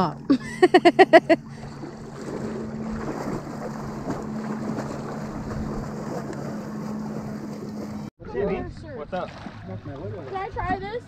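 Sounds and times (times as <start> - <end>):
steady low hum: 0.0 - 8.1
river water lapping and splashing: 1.2 - 11.0
wind buffeting microphone: 1.6 - 8.8.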